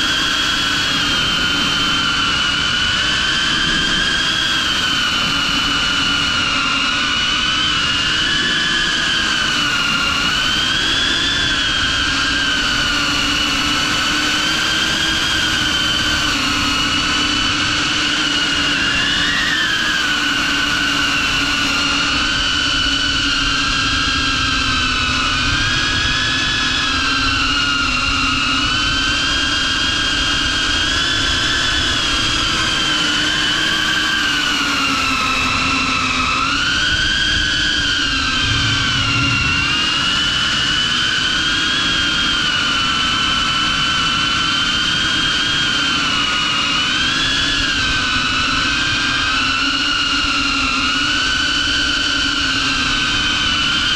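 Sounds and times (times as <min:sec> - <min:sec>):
drone motors whining: 0:36.7 - 0:42.0.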